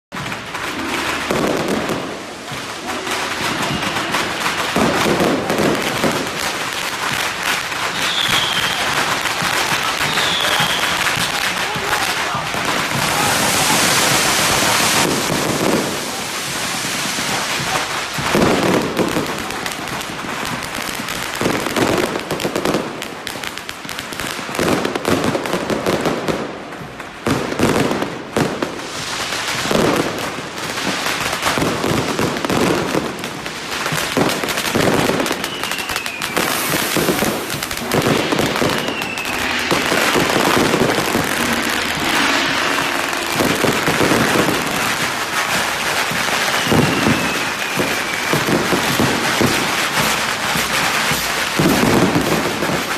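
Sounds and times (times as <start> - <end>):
firecrackers crackling: 0.1 - 52.9
firework bursts: 0.1 - 52.9
falling whistles: 7.9 - 9.0, 10.0 - 11.2, 35.3 - 45.0, 46.2 - 49.2.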